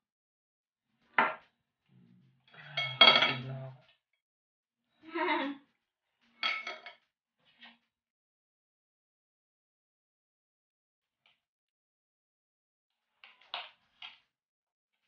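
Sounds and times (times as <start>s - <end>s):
metal spoon scraping ceramic plates: 2.5s - 3.8s.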